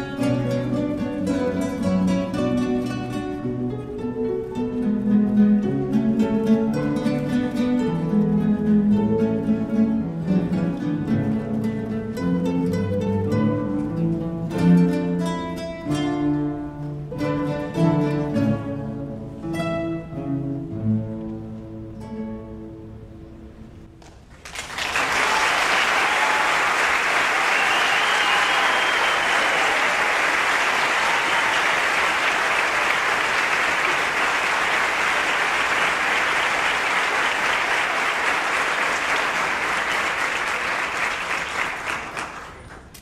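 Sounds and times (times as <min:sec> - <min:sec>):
audience applause: 0:24.3 - 0:43.0.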